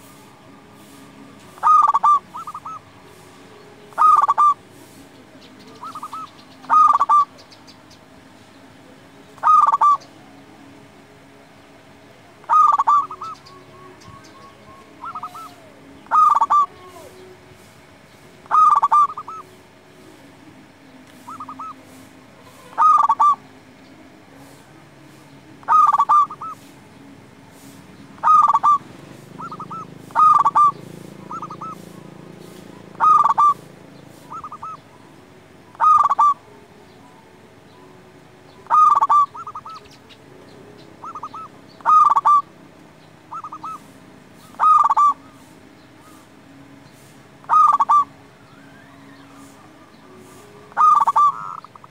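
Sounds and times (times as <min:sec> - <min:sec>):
dove cooing: 0:00.0 - 0:07.6, 0:09.4 - 0:10.4, 0:12.4 - 0:17.6, 0:18.4 - 0:19.6, 0:21.2 - 0:23.6, 0:25.5 - 0:26.8, 0:27.6 - 0:40.0, 0:40.8 - 0:42.6, 0:43.2 - 0:46.3, 0:47.0 - 0:48.2, 0:49.0 - 0:51.9.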